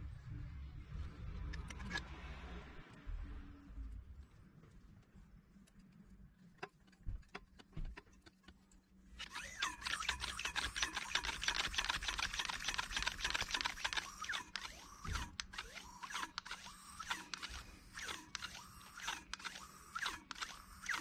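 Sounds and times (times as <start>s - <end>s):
hand air pump rattling hiss: 9.2s - 21.0s
hose clicks: 9.2s - 21.0s.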